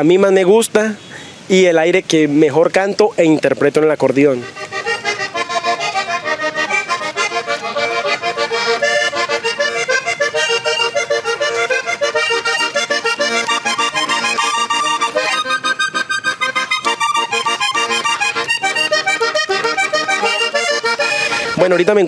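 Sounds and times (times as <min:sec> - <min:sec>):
button accordion playing melody: 0:04.3 - 0:22.0.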